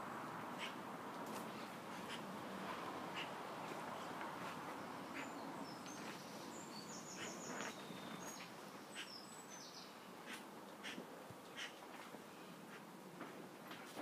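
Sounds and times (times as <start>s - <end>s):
faint outdoor background noise: 0.0s - 14.0s
small birds chirping: 3.1s - 12.9s.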